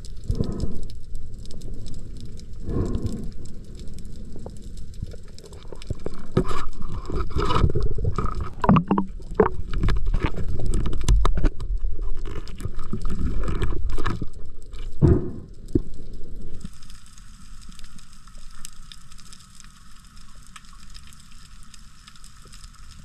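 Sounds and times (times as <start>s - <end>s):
knocks and clicks underwater: 0.0s - 16.8s
underwater rumbling water movement: 0.0s - 23.0s.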